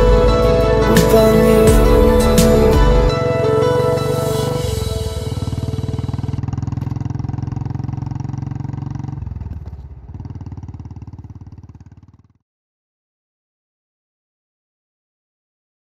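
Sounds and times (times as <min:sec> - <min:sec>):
motorcycle engine running: 0:00.0 - 0:12.4.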